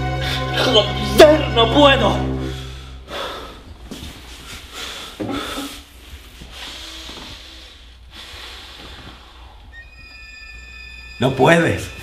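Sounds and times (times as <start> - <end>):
man breathing heavily: 2.4 - 9.7.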